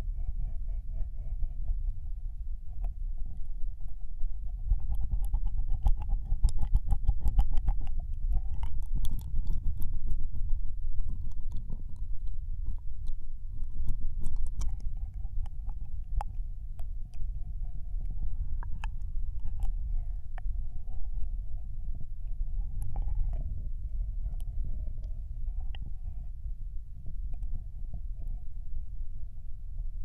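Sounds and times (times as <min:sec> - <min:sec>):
deep rubbing rumble on microphone: 0:00.0 - 0:30.0
wet mouth clicks and smacks: 0:04.7 - 0:17.3.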